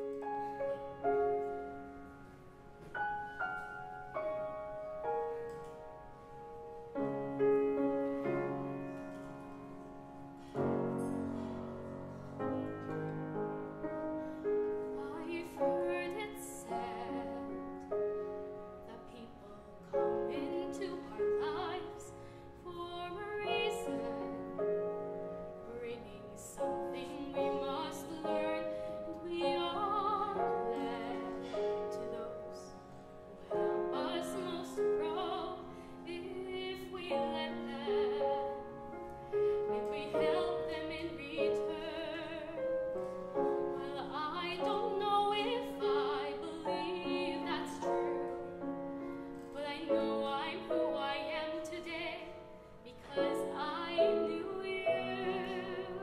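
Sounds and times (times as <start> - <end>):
woman singing operatic ballad: 14.9 - 17.9, 18.8 - 24.9, 25.6 - 32.8, 33.5 - 38.8, 39.5 - 42.7, 43.5 - 48.4, 49.4 - 56.0.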